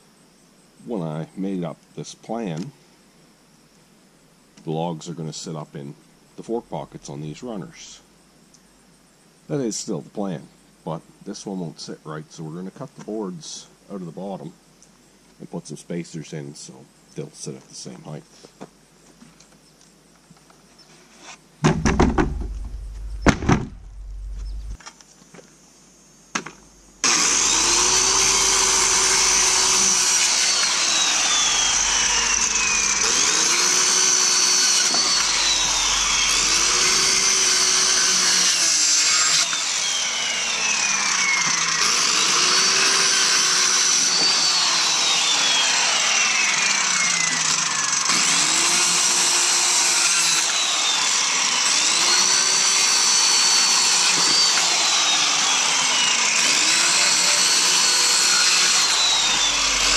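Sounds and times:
circular saw cutting wood: 26.4 - 59.9.

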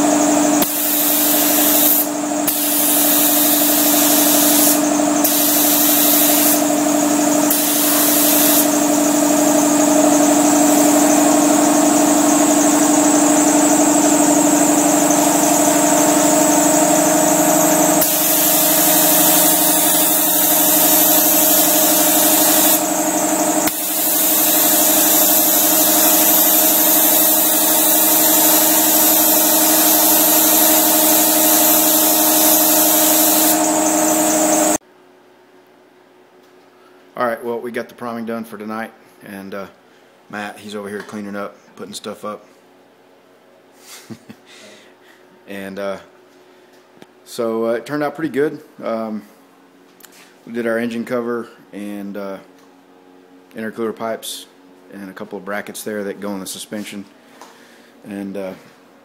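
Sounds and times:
steady motor hum: 0.0 - 34.8
spray gun hissing: 0.6 - 9.2, 15.0 - 34.8.

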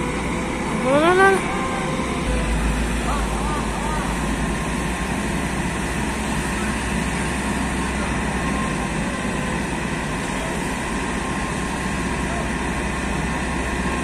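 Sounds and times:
diesel engine rumble: 0.0 - 14.0
people's voices: 0.7 - 5.2.

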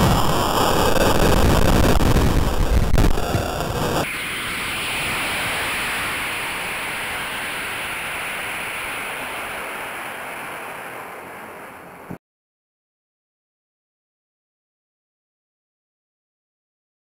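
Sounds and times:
rocket motor exhaust hiss: 0.0 - 12.2.

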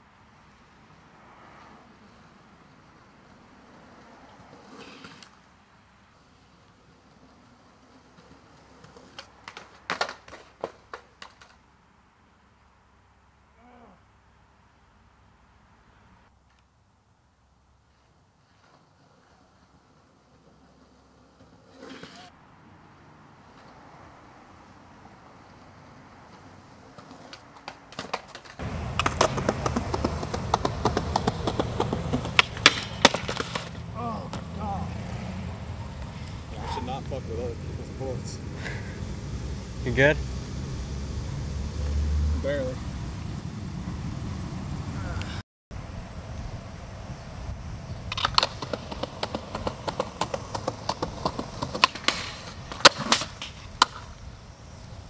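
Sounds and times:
skateboard wheels rumbling: 0.4 - 11.8, 17.8 - 22.5, 23.4 - 55.0
skateboard cracking on ground: 1.5 - 11.7, 17.9 - 22.4, 25.5 - 34.5, 48.0 - 55.0
wheels clicking over seams: 26.3 - 40.9, 45.2 - 55.0.

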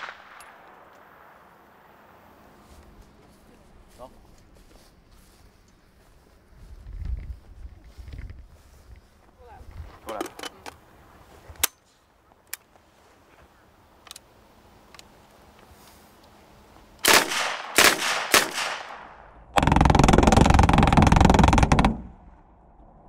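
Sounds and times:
automatic gunfire burst: 17.0 - 19.0.

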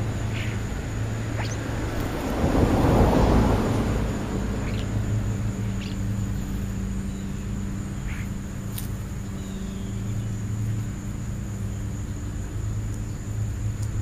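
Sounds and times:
birds chirping: 0.0 - 2.4, 3.8 - 13.3
thin high whine: 0.0 - 2.4
low motor hum: 0.0 - 14.0.

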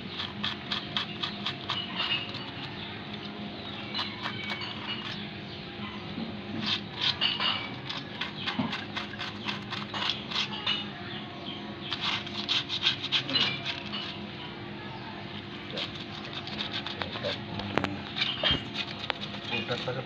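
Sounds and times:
brush scrubbing metal: 11.8 - 14.3, 15.6 - 17.4, 18.1 - 20.0.

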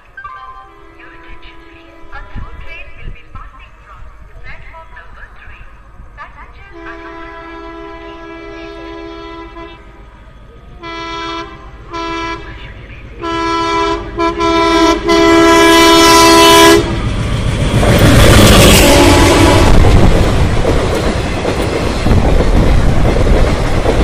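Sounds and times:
locomotive horn blasts: 6.7 - 9.9, 10.7 - 17.0, 18.4 - 19.9.

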